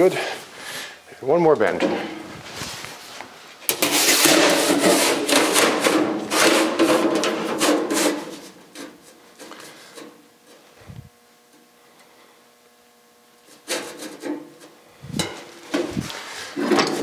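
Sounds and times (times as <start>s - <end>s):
steel sheet scraping and rattling: 3.7s - 9.0s.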